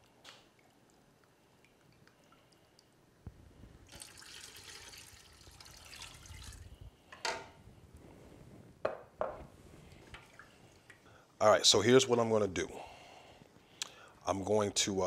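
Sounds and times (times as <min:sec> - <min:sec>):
liquid pouring and sloshing: 0:03.8 - 0:06.9, 0:09.8 - 0:11.1.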